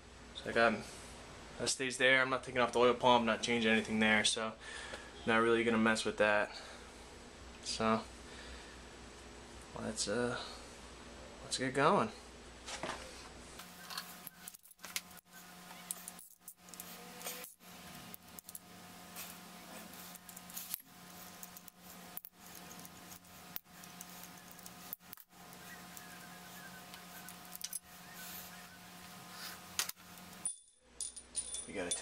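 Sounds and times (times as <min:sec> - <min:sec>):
metal chain clinking and rattling: 0:30.2 - 0:32.0.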